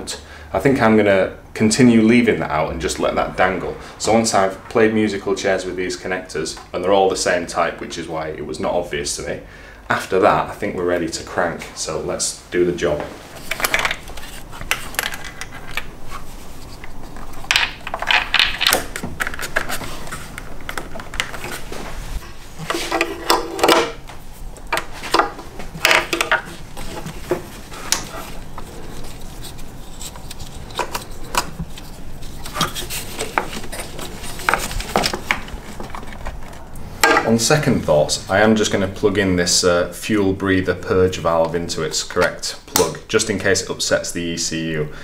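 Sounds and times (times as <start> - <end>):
wiring rustling: 12.8 - 39.2.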